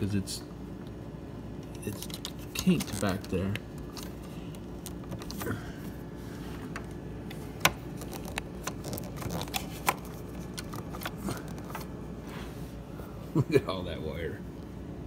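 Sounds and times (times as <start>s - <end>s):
plastic parts rustling and scraping: 1.7s - 5.4s, 7.7s - 12.0s.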